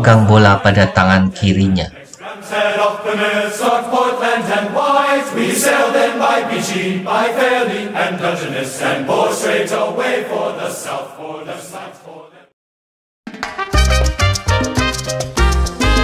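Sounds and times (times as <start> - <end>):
choir chanting slow notes: 1.9 - 12.6.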